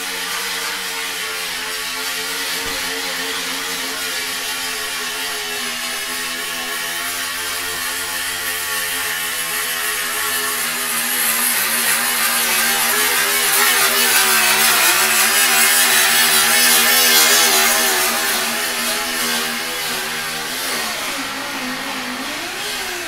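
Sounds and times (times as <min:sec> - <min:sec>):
steady machine hum: 0:00.0 - 0:08.7
grinder on steel panel: 0:00.0 - 0:23.0.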